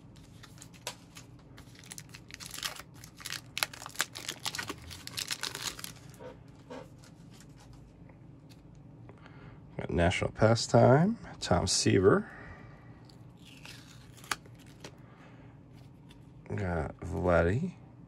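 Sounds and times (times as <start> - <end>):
plastic crinkling: 0.2 - 6.2, 13.4 - 14.9.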